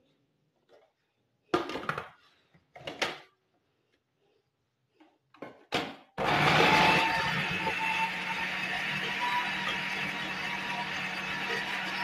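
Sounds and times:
food processor motor whirring: 6.2s - 12.0s.

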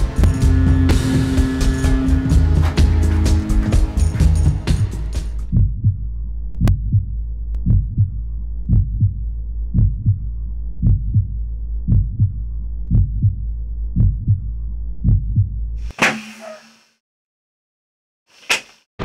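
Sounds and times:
steady low hum: 0.0s - 15.8s
heartbeat double thump: 5.5s - 13.4s, 14.0s - 15.6s.

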